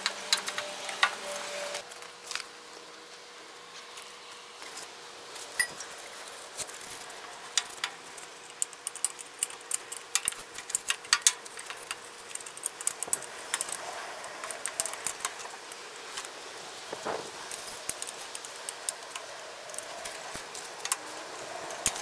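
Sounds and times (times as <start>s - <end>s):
metallic clicks of hand tools: 7.5s - 13.8s.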